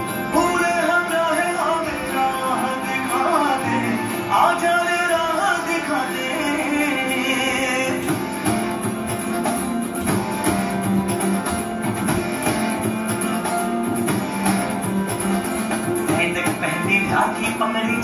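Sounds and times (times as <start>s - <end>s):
melodic music over percussive beat: 8.1s - 16.8s.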